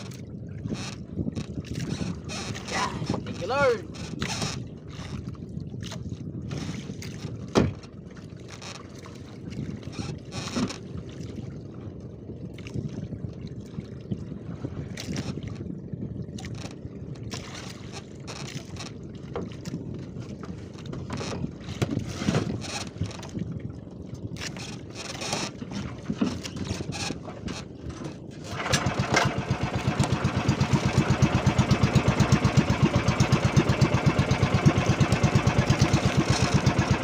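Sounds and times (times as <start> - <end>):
water and wind around hull: 0.0 - 37.0
short splashes or knocks: 6.7 - 9.8, 16.4 - 23.4, 24.4 - 37.0.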